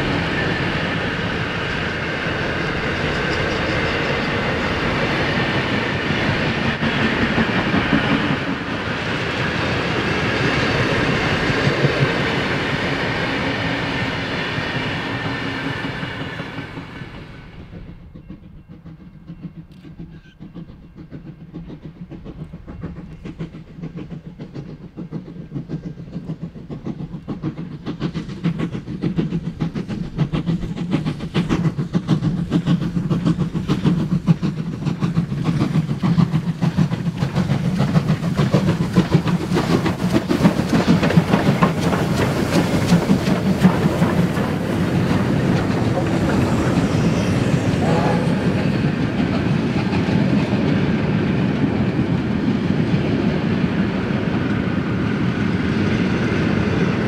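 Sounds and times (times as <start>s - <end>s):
steam locomotive exhaust beats: 0.0s - 57.0s
carriage wheels clicking over rail joints: 18.3s - 50.8s.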